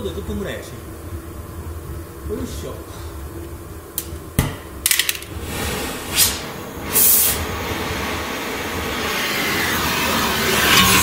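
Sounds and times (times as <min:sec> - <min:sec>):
short bursts of hiss: 0:05.4 - 0:08.4.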